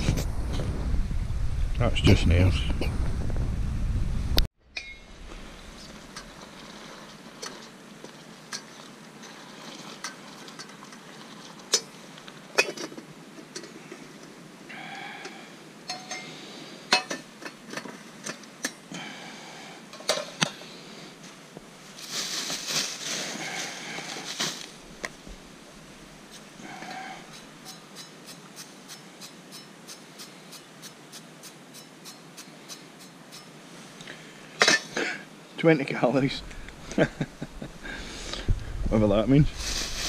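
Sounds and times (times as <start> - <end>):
rustling hiss: 5.0 - 40.0.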